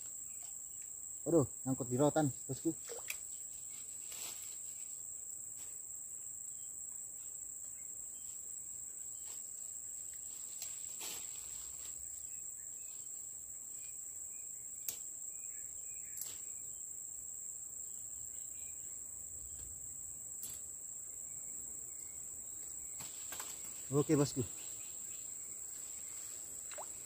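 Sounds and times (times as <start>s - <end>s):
insect trilling: 0.0s - 5.0s, 17.8s - 27.0s.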